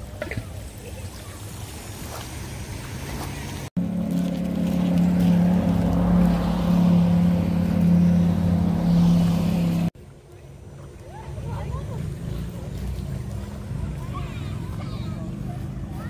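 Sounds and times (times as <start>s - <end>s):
outdoor background noise: 0.0s - 16.0s
steady engine drone: 3.3s - 10.0s.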